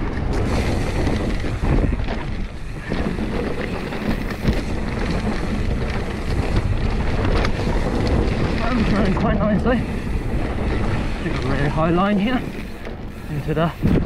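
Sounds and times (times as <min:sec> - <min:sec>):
bike knocks and rattles: 0:00.0 - 0:14.0
wind buffeting microphone: 0:00.0 - 0:14.0.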